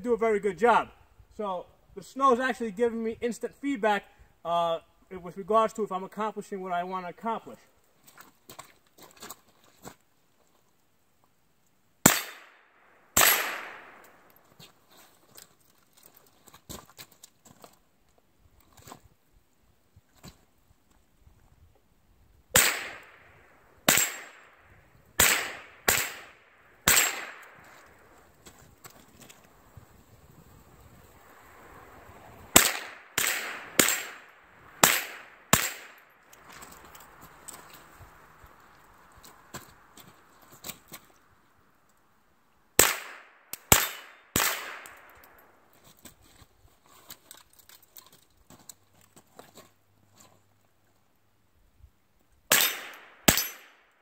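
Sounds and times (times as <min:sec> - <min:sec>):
rifle shots with echo: 0:12.0 - 0:14.3, 0:22.6 - 0:27.8, 0:32.5 - 0:36.1, 0:42.8 - 0:45.4, 0:52.5 - 0:53.8.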